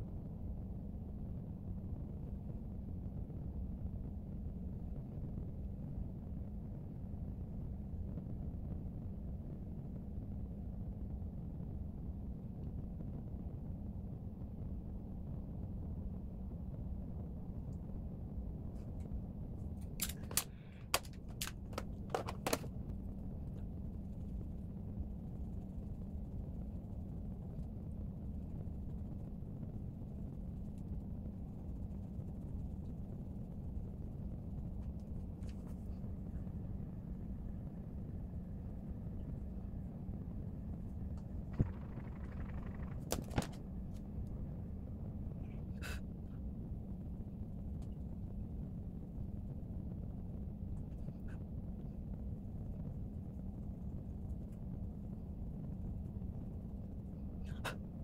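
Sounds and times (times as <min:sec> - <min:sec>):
low room noise: 0:00.0 - 0:58.0
sharp clicks: 0:19.8 - 0:22.7.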